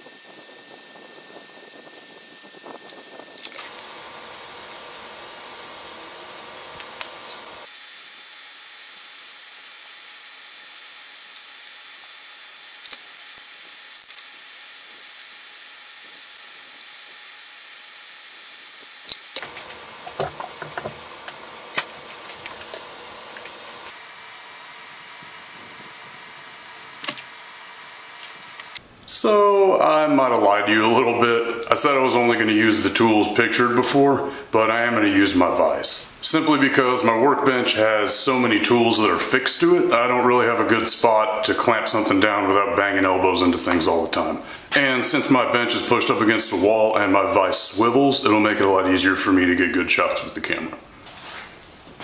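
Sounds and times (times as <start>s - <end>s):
paper rustling: 3.4s - 7.7s
scissors cutting paper: 3.4s - 7.7s.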